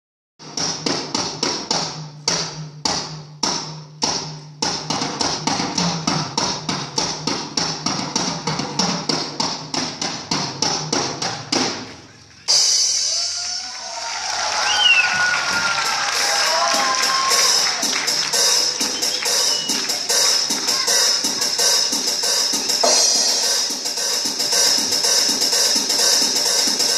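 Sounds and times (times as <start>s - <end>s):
audience applause and cheering: 12.8s - 22.0s
drum kit strikes: 15.1s - 26.9s.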